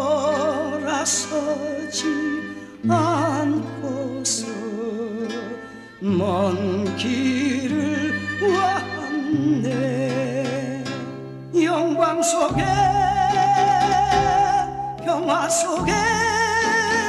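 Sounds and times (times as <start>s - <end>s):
person singing with vibrato: 0.0s - 17.0s
held bass notes: 6.0s - 10.7s, 11.6s - 17.0s.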